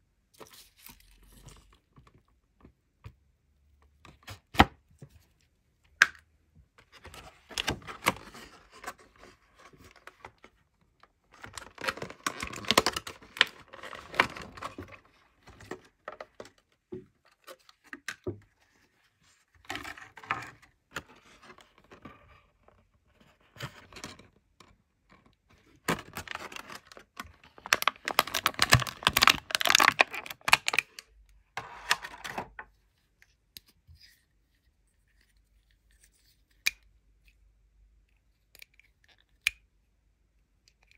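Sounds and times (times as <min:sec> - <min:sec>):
plastic packaging crinkling: 0:25.9 - 0:31.0.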